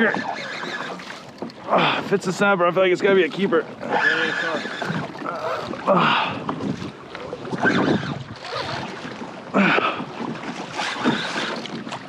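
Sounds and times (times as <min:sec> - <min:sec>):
loud water splashes: 0:00.0 - 0:12.0
waves slapping against kayak hull: 0:00.0 - 0:12.0
wind on microphone: 0:04.6 - 0:09.2, 0:09.9 - 0:12.0.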